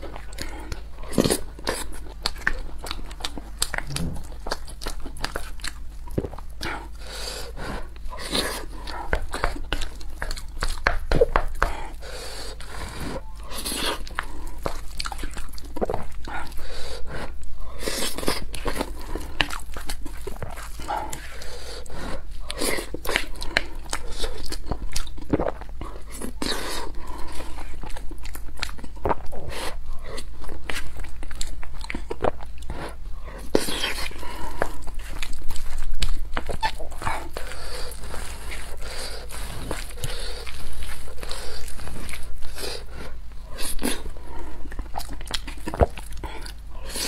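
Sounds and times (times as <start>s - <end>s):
chewing with clicks and smacks: 0.0s - 47.0s.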